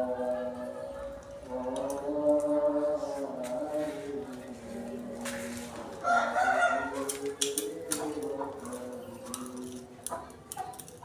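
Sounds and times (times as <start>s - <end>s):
steady humming tones: 0.0s - 10.9s
rooster crowing: 6.0s - 7.2s.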